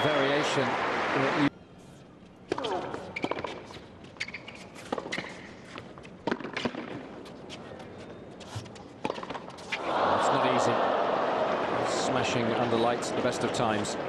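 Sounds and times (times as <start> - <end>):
low stadium background: 0.0 - 14.0
tennis ball and shoe taps: 6.2 - 7.0.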